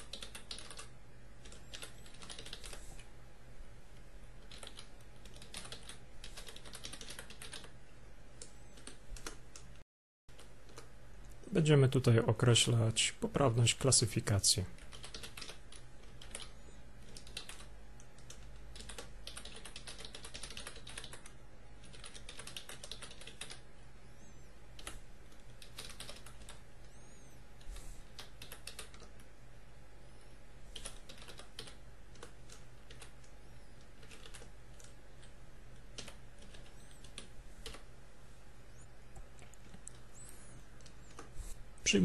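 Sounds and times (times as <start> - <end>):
typing on computer keyboard: 0.0 - 2.8, 4.4 - 7.8, 14.8 - 23.6, 24.8 - 26.6, 28.1 - 29.3, 30.7 - 33.3, 33.9 - 37.8.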